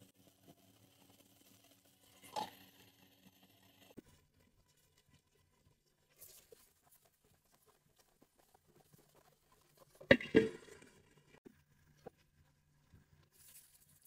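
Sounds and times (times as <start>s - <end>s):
okra frying in oil: 0.0s - 6.6s.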